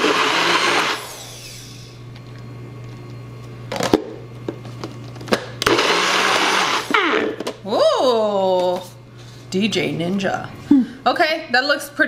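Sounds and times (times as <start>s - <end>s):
blender motor whirring: 0.0s - 2.0s, 5.6s - 7.6s.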